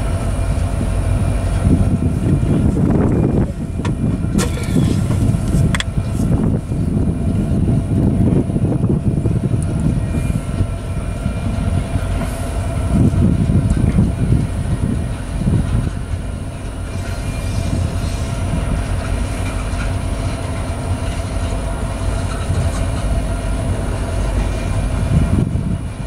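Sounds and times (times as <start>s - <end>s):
steel wheels rumbling on rail: 0.0s - 26.0s
wheels clickety-clack: 18.7s - 25.5s.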